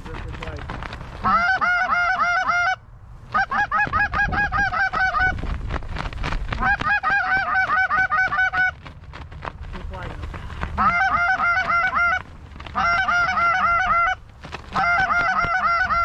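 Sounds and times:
goose call clucks: 1.2 - 5.4, 6.6 - 8.8, 10.4 - 16.0.

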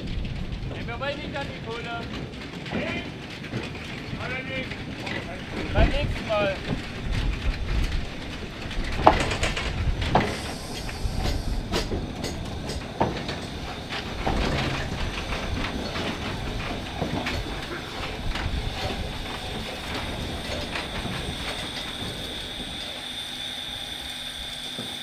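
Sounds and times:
steam locomotive wheels clanking: 0.0 - 25.0
steam hiss: 9.2 - 25.0
steady high hiss: 10.1 - 14.6.

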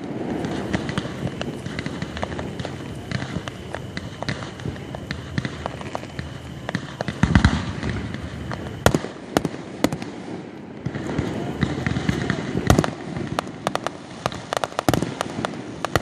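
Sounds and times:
deep firework boom: 0.0 - 10.1
fireworks crackling: 0.0 - 16.0
sharp loud firework bangs: 0.0 - 16.0.

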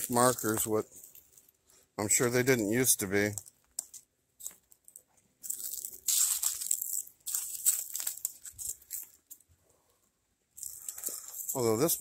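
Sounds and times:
footsteps crunching dry leaves: 5.4 - 9.2.

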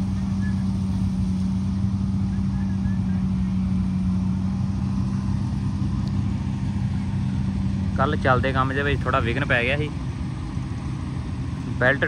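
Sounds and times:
combine harvester engine drone: 0.0 - 12.0.

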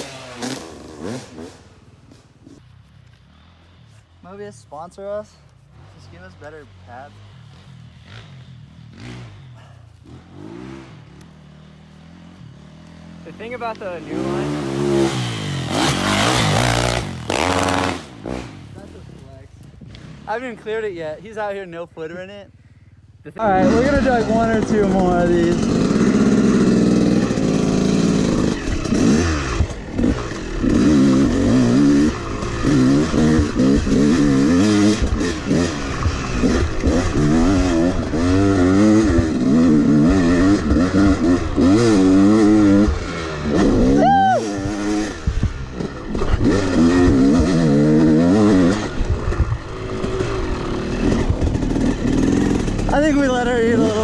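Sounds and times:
dirt bike engine revving: 0.0 - 5.0, 5.7 - 21.0, 23.3 - 54.0.

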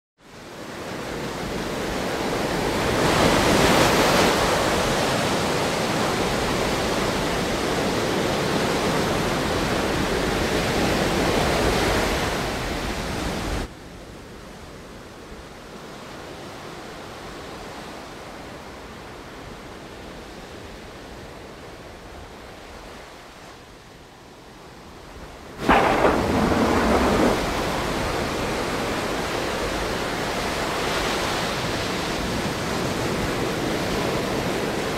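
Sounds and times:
steady rushing noise: 25.5 - 32.2
sudden crash: 25.6 - 28.3.

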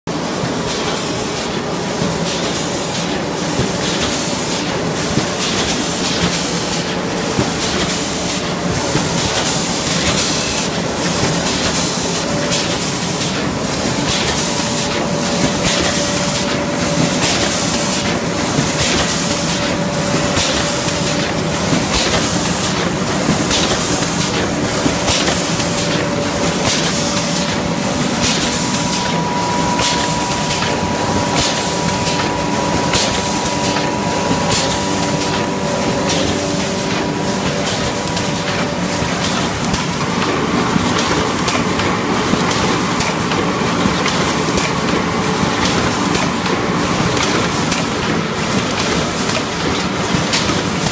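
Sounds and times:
machine mechanical clatter: 0.6 - 50.9
steady hum: 12.0 - 42.9.

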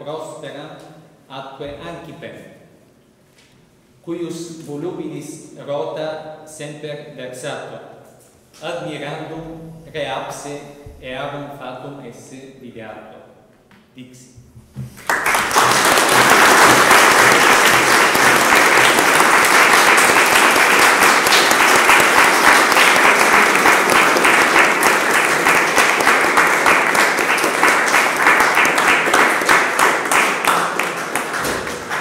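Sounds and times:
audience applauding: 15.0 - 32.0.

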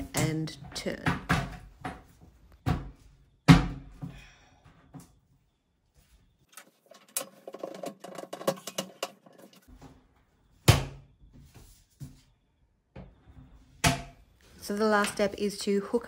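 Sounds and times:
plastic toilet seat clicks and rattles: 6.9 - 9.6
toilet seat clacking: 6.9 - 9.6.

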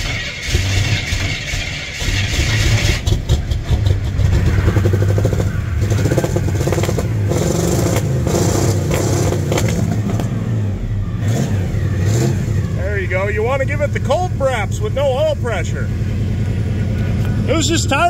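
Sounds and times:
engine cranking: 0.0 - 10.4
truck engine running rough and revving: 0.0 - 18.0.

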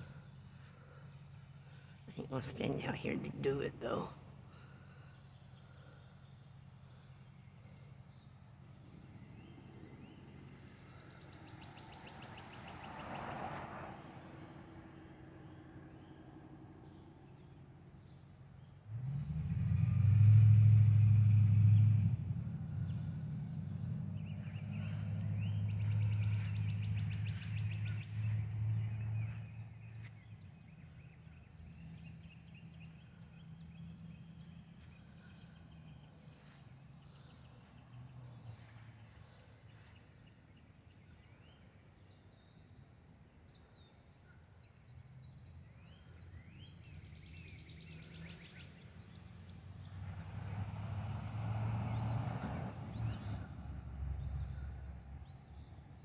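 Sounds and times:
birds chirping: 20.8 - 36.3.

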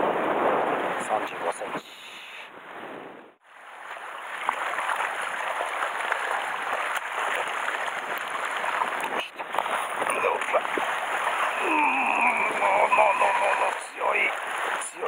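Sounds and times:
sea water lapping on rocks: 3.6 - 15.0.

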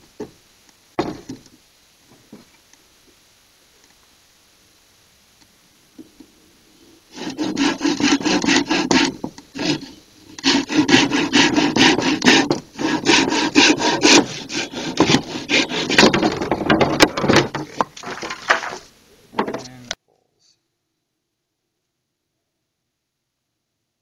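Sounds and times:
hand saw cutting bamboo: 7.1 - 18.8.

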